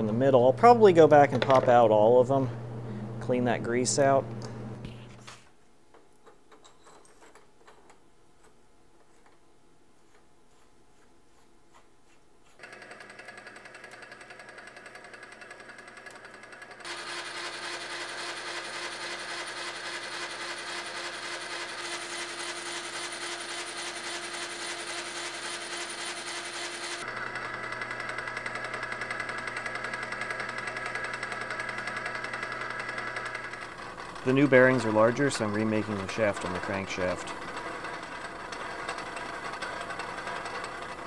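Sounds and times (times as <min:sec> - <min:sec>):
metal lathe rattling: 0:12.6 - 0:41.0.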